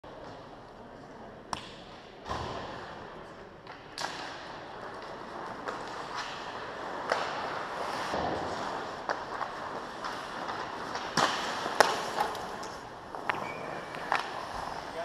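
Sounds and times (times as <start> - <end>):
stick hitting puck clacks: 3.6 - 14.8
skates on ice: 3.7 - 15.0.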